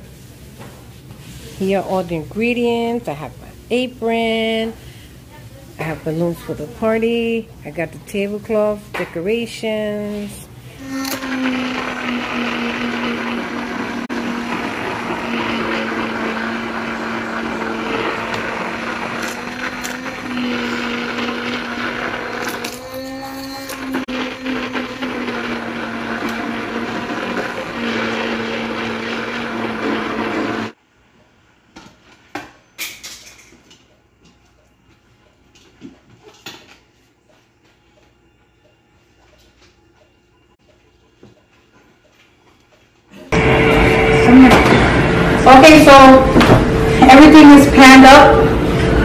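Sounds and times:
immersion blender motor hum: 10.8s - 30.8s, 43.3s - 49.0s.

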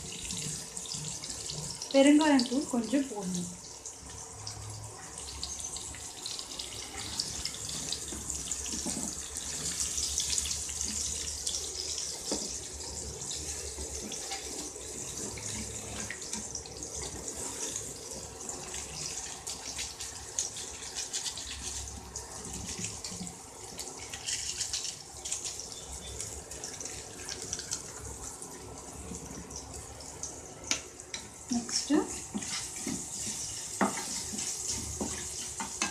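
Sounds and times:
hot oil sizzling and crackling: 0.0s - 35.9s
wooden spatula stirring: 6.8s - 12.7s, 13.3s - 28.3s, 30.7s - 35.9s.

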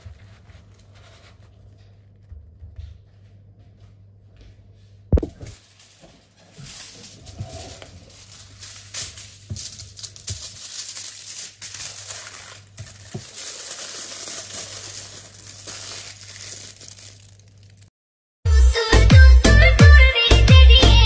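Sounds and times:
aluminium foil crinkling: 5.5s - 17.9s.

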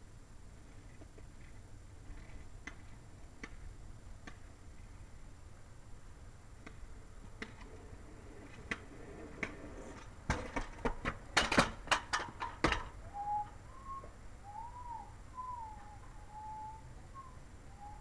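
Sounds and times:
wheels clicking over concrete joints: 0.5s - 5.3s, 6.6s - 13.1s
scooter metallic clacks: 8.5s - 13.0s
whistle-like tones: 13.1s - 18.0s.

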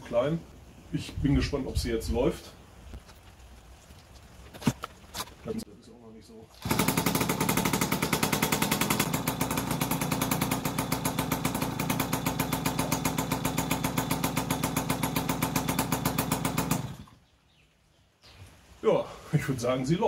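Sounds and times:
two-stroke moped engine running: 6.6s - 17.2s.

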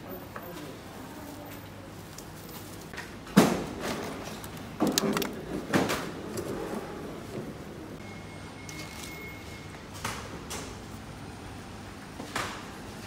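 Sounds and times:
plastic pack knocks and clatters: 3.4s - 6.0s.

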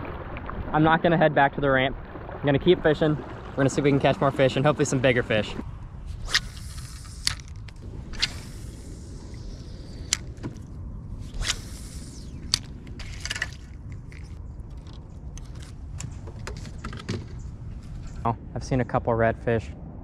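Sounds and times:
low steady rumble: 0.0s - 20.0s
fishing reel winding: 6.2s - 10.3s.

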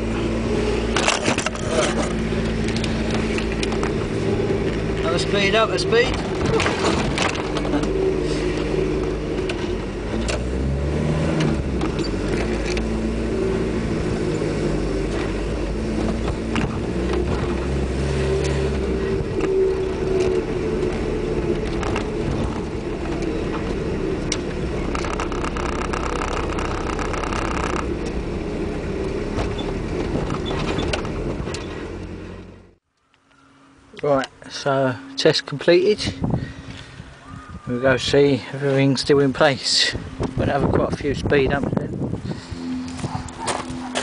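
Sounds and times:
road noise: 0.0s - 44.0s
van engine while driving: 0.0s - 44.0s
knocks and rattles: 21.6s - 28.2s.

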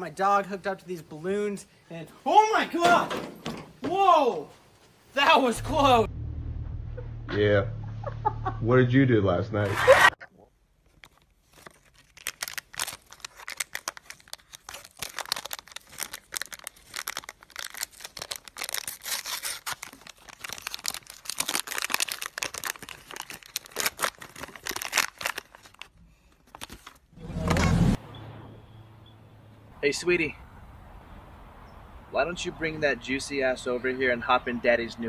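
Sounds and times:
plastic wrapper crinkling: 10.8s - 27.1s.

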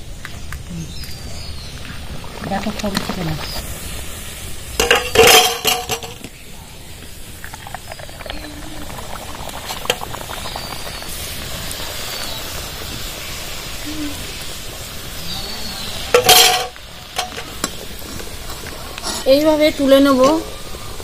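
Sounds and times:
oil sizzling: 1.0s - 21.0s
metal clank: 4.8s - 6.3s, 16.2s - 17.8s.

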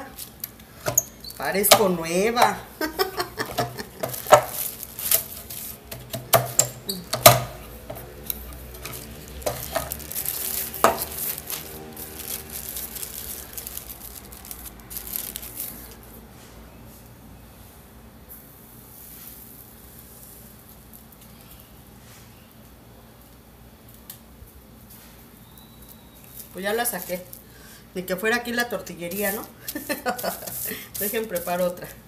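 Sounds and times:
plastic sheets crinkling: 0.0s - 16.2s, 28.4s - 32.0s
wooden press knocking and clattering: 5.9s - 8.0s.

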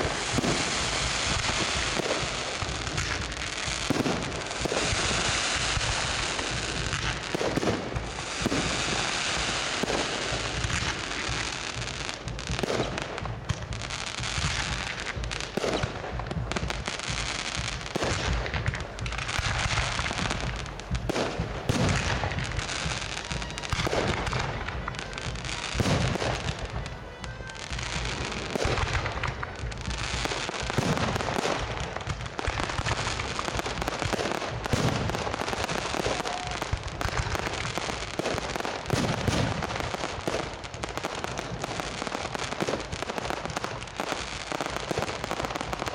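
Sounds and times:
deep fireworks booms: 0.0s - 45.9s
fireworks bursting: 0.0s - 45.9s.

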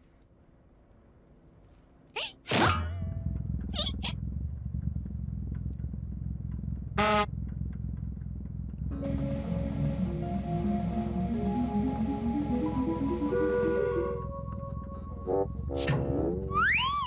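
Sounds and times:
low mechanical rumble: 2.8s - 17.0s
music: 8.9s - 17.0s.

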